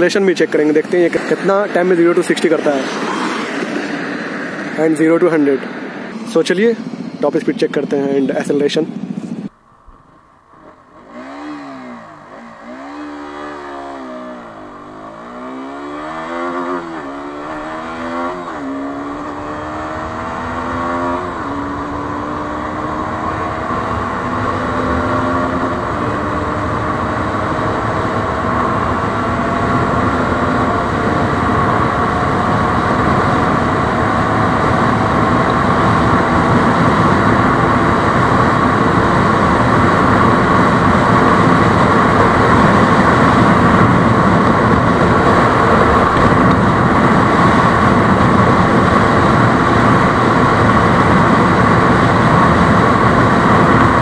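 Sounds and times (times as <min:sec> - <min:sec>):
motorcycle engine accelerating: 0:00.0 - 0:54.0
wind noise: 0:11.1 - 0:54.0.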